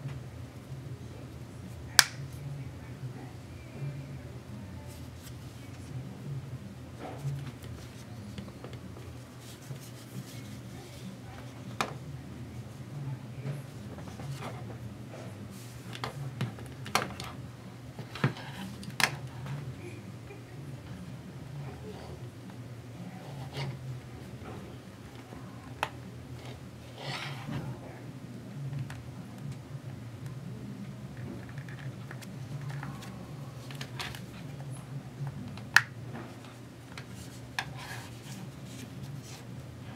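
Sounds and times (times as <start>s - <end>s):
low steady hum: 0.0s - 39.9s
plastic hinge snapping: 2.0s - 2.2s
sharp plastic clicks: 2.0s - 2.2s
scratchy plastic handling: 7.0s - 12.0s.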